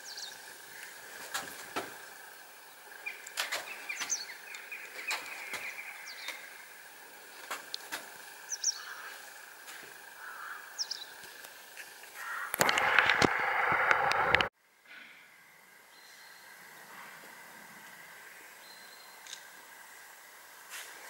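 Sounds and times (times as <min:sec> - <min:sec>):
small birds chirping: 0:00.0 - 0:12.6, 0:18.3 - 0:19.5.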